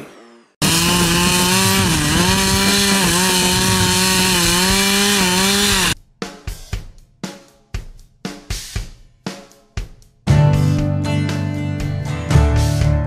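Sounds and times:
chainsaw cutting wood: 0.6s - 6.0s.

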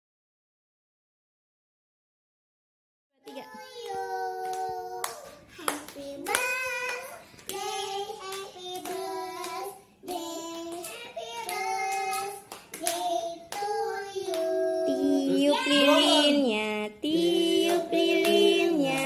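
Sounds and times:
small children singing: 3.2s - 19.0s
hand claps: 4.4s - 14.5s.

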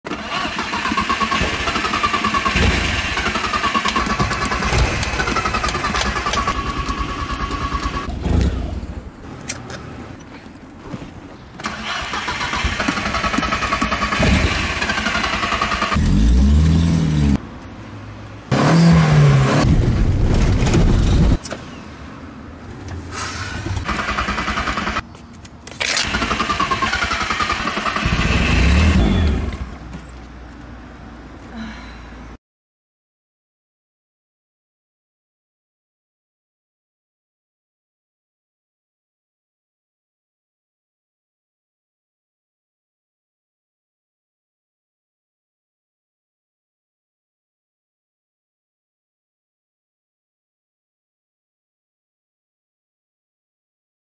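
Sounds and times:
engine catching and revving: 0.1s - 8.7s, 11.6s - 17.4s, 18.5s - 21.4s, 25.9s - 29.9s
engine cranking on starter: 0.1s - 8.7s, 11.6s - 16.6s, 23.7s - 25.0s, 25.8s - 29.8s.

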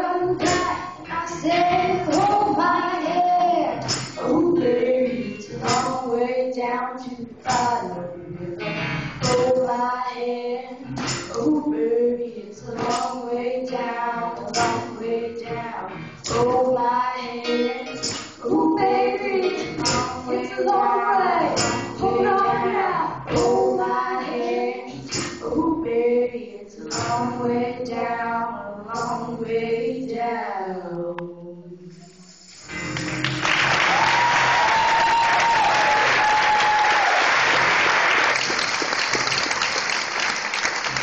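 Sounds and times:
girls singing into microphones: 0.0s - 32.2s.

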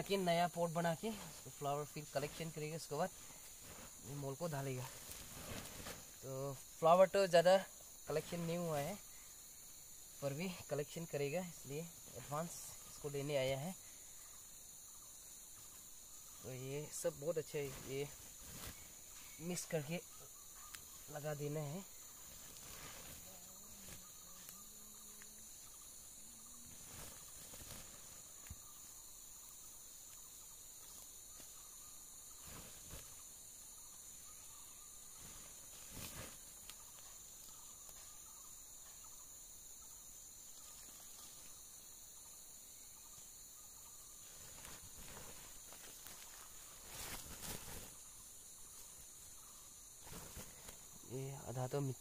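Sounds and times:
insects droning: 0.0s - 52.0s.

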